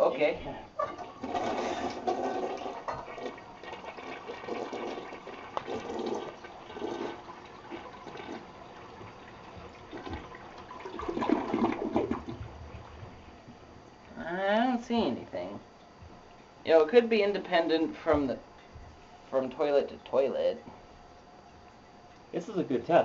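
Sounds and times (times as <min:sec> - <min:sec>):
toilet flushing: 0:00.9 - 0:12.9.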